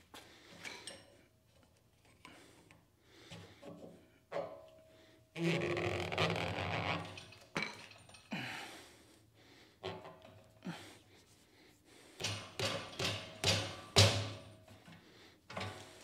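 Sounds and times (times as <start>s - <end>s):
rubber grip squeaking: 5.4s - 7.1s.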